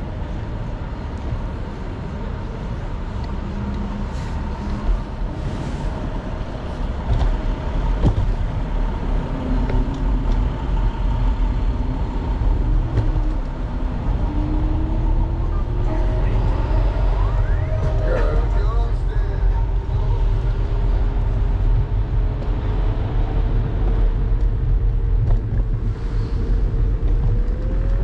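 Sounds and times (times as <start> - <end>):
street traffic: 0.0 - 28.0
wind and road rumble: 0.0 - 28.0
rising tone: 14.0 - 20.3.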